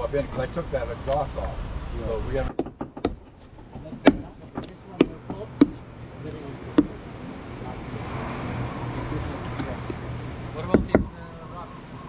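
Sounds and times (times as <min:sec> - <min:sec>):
hammer striking nails into wood: 0:02.5 - 0:03.3, 0:03.9 - 0:05.8, 0:10.6 - 0:11.2.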